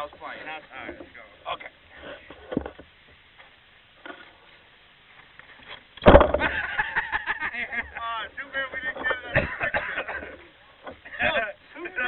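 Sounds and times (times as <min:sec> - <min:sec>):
bump and rustle at microphone: 0:00.0 - 0:01.3, 0:01.9 - 0:06.8, 0:08.6 - 0:11.4.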